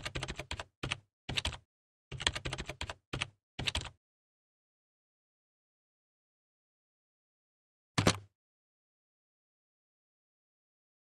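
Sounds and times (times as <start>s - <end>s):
laptop keyboard typing: 0.0s - 4.0s.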